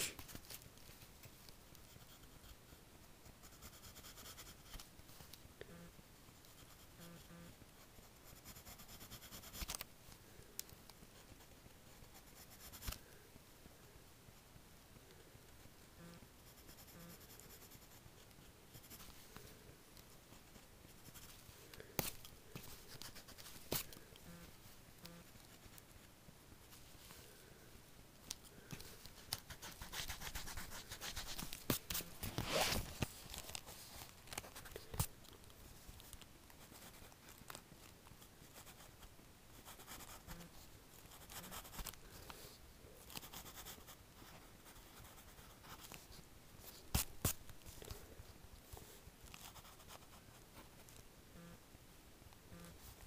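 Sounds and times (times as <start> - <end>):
pencil scratching on paper: 1.8 - 4.8, 8.0 - 9.8, 11.1 - 13.0, 16.4 - 19.2, 20.9 - 21.4, 28.8 - 32.8, 39.6 - 40.5, 41.1 - 42.0, 43.1 - 46.0.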